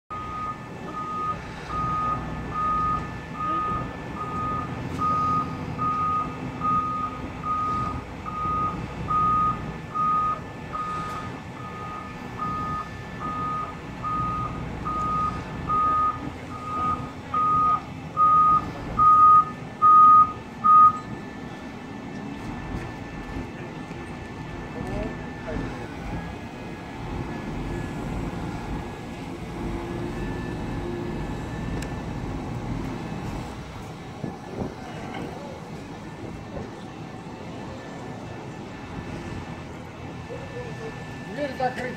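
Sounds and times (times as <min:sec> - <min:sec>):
warning beeper beeping: 0:00.1 - 0:21.2
diesel engine hum: 0:00.1 - 0:41.9.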